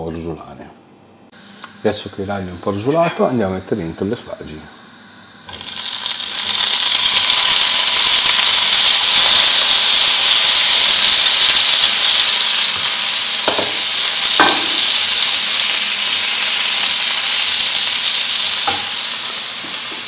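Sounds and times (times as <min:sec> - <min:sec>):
vegetables sizzling in hot oil: 0:05.3 - 0:20.0
wooden spoon knocking on pan: 0:13.5 - 0:13.8, 0:14.4 - 0:14.8, 0:18.7 - 0:18.9.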